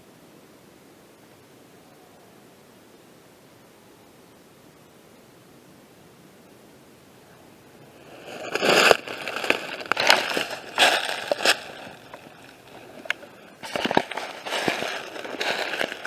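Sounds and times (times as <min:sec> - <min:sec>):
footsteps crunching through dry leaves: 0:08.0 - 0:16.0.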